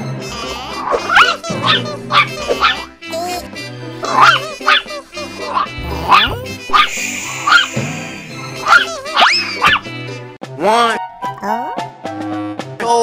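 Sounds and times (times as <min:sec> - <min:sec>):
background music: 0:00.0 - 0:13.0
puppy barking: 0:00.8 - 0:03.0, 0:04.0 - 0:07.8, 0:08.6 - 0:09.9.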